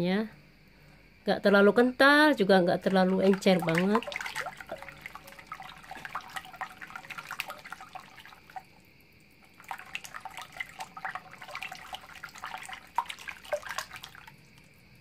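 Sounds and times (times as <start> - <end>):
liquid splashes and drips: 2.8 - 15.0
batter being stirred in bowl: 2.9 - 8.6, 9.6 - 14.2.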